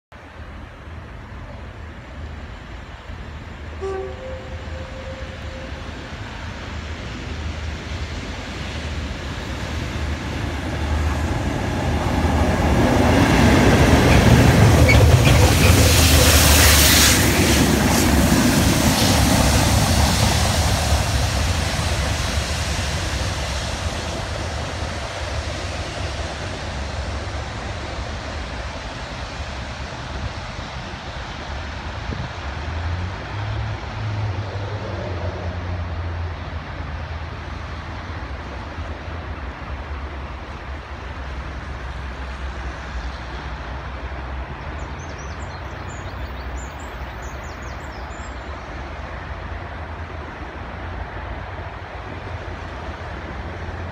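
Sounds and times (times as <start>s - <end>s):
diesel locomotive engine rumble: 0.1s - 53.9s
loud train hiss: 2.2s - 32.8s.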